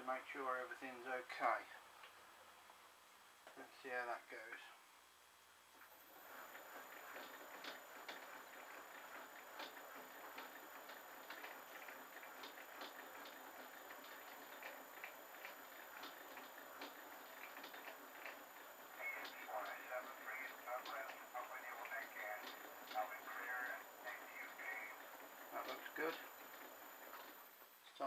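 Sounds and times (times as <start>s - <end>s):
irregular ticking and clicking: 5.8s - 27.6s
lathe motor whirring: 5.8s - 27.6s.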